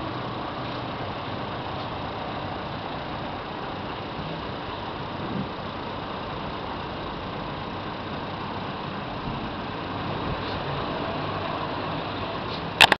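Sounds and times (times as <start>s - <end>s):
diesel truck engine running: 0.0s - 13.0s
sharp click: 12.5s - 13.0s.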